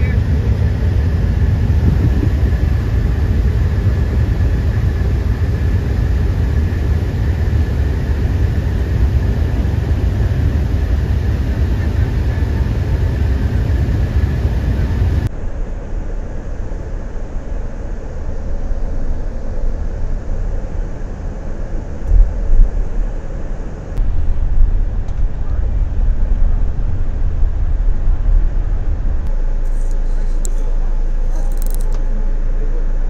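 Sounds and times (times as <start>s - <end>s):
vehicle road noise rumble: 0.0s - 33.0s
low bumps: 13.3s - 32.7s.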